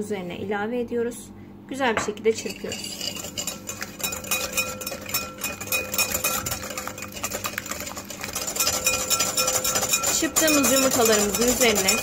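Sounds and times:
wire whisk clicking against glass bowl: 2.7s - 12.0s.

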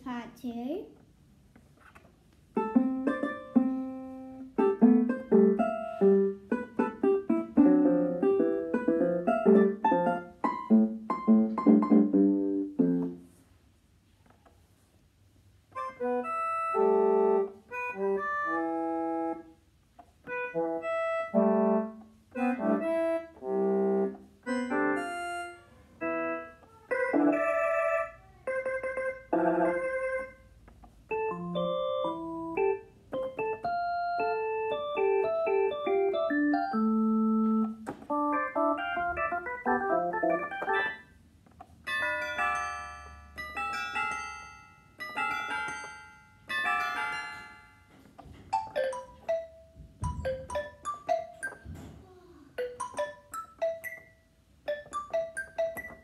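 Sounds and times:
electronic keyboard playing: 2.6s - 13.2s, 15.7s - 19.5s, 20.2s - 42.7s, 48.0s - 51.9s, 52.6s - 56.0s.

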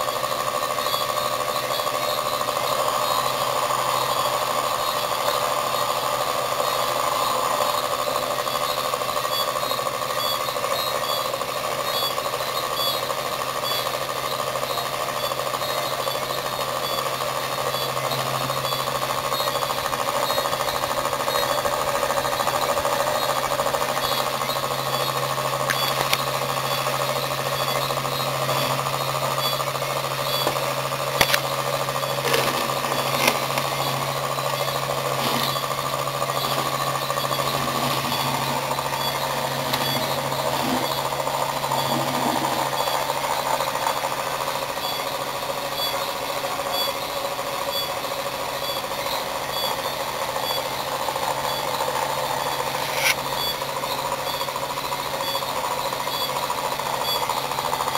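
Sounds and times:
pulse motor buzzing: 0.0s - 57.9s
sharp clicks: 25.6s - 26.8s, 30.3s - 31.6s.

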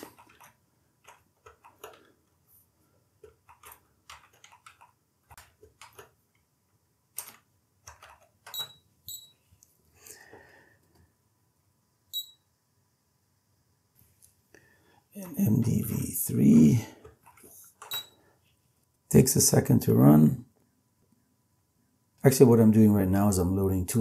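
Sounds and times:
keyboard keystrokes clicking: 3.2s - 6.2s, 7.2s - 8.8s.

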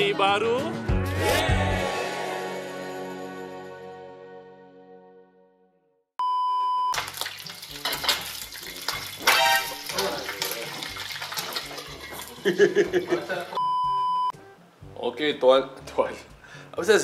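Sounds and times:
outro music: 0.0s - 5.9s
high test-tone beep: 6.2s - 6.9s, 13.6s - 14.3s
oil sizzling in frying pan: 7.0s - 13.5s
cookware clatter: 7.2s - 13.4s.

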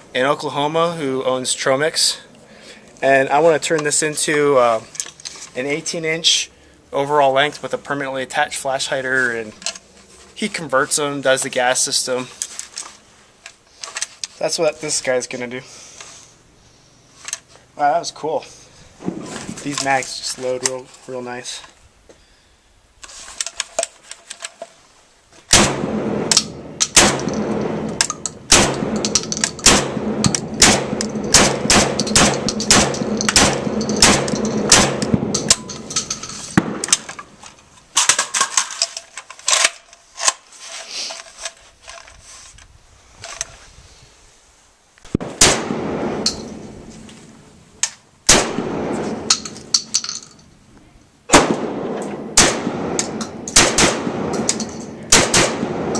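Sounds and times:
rapid shotgun shots with echo: 25.5s - 35.5s, 48.3s - 49.3s, 51.3s - 54.5s, 55.1s - 55.9s.

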